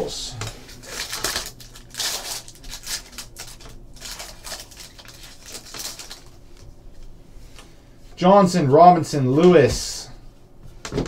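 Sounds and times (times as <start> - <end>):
foil wrapper crinkling: 0.6 - 6.4.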